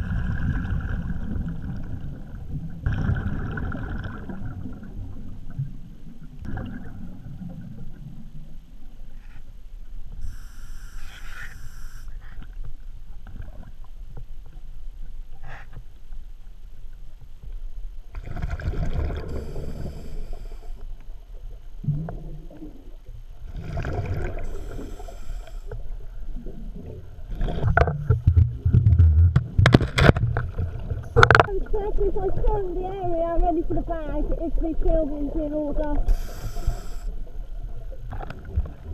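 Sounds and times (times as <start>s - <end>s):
underwater exhaled bubbles rushing: 0.0s - 8.6s, 18.1s - 20.4s, 21.5s - 33.1s
low underwater rumble: 0.0s - 38.9s.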